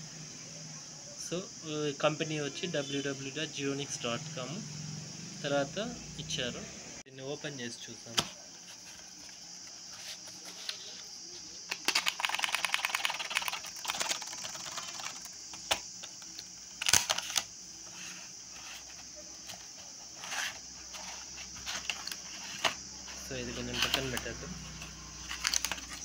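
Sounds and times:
plastic crackling: 11.7 - 17.5, 23.6 - 26.0
plastic clicks and rattles: 25.3 - 26.0.

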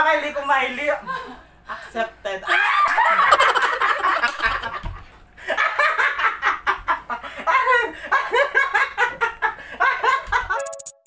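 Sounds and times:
women laughing hard: 2.5 - 10.6.

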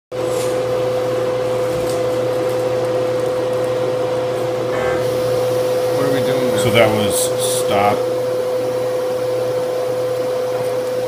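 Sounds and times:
machine drone with held tone: 4.4 - 10.4.

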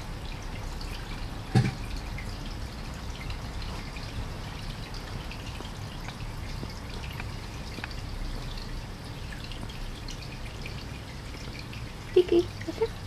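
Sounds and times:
guinea pig vocal sounds: 12.1 - 13.0.

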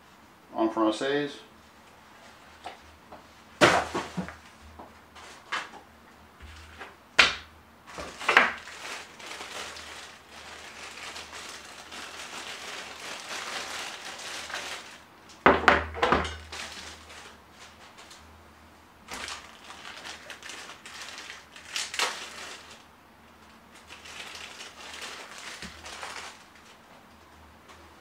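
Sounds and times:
plastic bag rustling: 1.6 - 5.8, 7.8 - 15.3, 16.2 - 18.3, 19.0 - 27.1.

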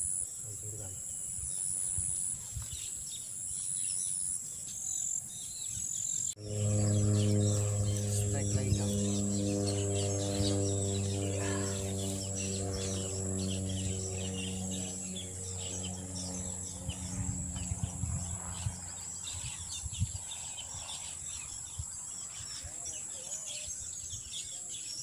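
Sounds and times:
insects buzzing: 0.0 - 25.0
birds chirping: 0.1 - 25.0
low steady drone: 6.3 - 22.9.

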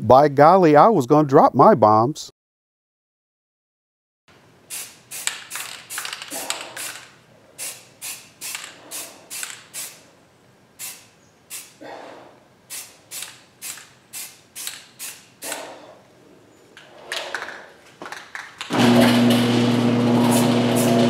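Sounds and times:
spray paint can hissing: 4.7 - 10.1, 10.8 - 11.8, 12.7 - 15.7
garage door opener humming: 18.6 - 21.0.

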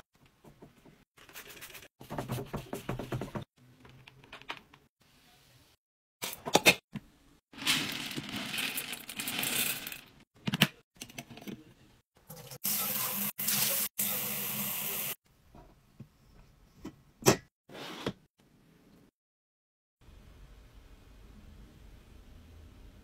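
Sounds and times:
faucet running into sink: 12.3 - 15.2.

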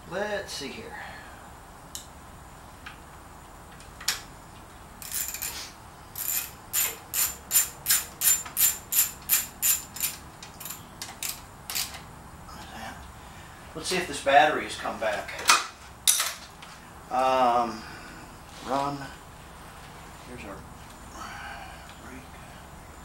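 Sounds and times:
ratchet wrench clicking: 5.0 - 5.6, 6.2 - 12.0.

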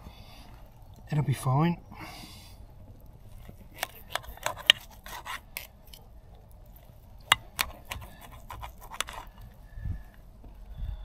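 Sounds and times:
knife scraping on metal plate: 3.8 - 6.0, 7.6 - 9.4.

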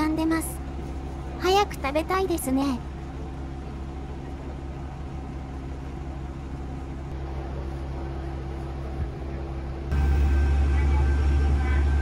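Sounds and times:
diesel engine idling: 9.9 - 12.0.

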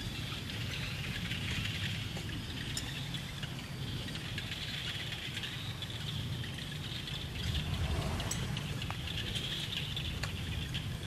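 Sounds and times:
high-pitched wildlife chorus: 0.0 - 11.0
low rumble: 7.2 - 11.0.

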